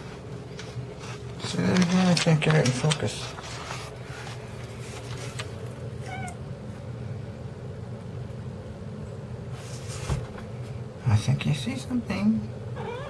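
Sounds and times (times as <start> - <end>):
steady low hum: 0.0 - 13.0
cat chirping: 6.0 - 6.4, 12.8 - 13.0.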